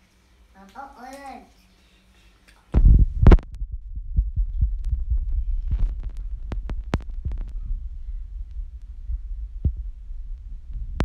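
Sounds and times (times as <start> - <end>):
low rumble: 2.8 - 11.0
oil crackling and popping: 5.6 - 7.6.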